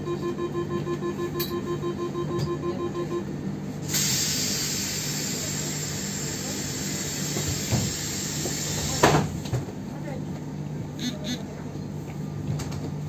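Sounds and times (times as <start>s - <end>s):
repeating beep: 0.0s - 3.2s
train low hum: 0.0s - 13.0s
compressed air hissing: 3.9s - 9.0s.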